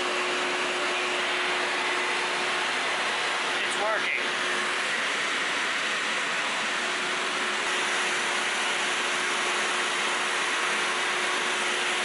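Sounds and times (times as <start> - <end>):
shop vac blowing air: 0.0 - 12.0.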